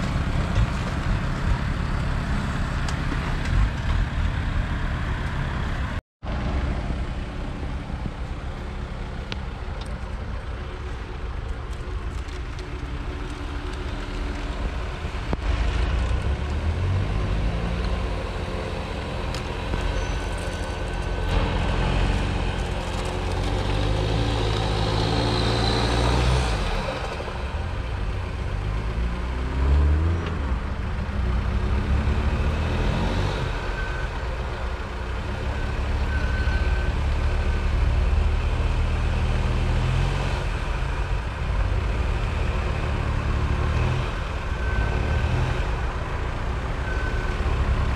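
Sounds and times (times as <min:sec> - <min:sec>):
off-road vehicle engine revving: 0:13.1 - 0:34.0, 0:35.2 - 0:47.9.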